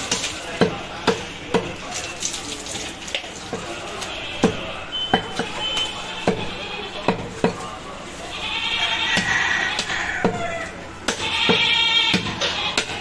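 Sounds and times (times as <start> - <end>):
cleaver chopping meat: 0.1 - 1.9, 4.4 - 7.6, 9.1 - 13.0
goat bleating: 6.0 - 7.1, 8.3 - 12.9.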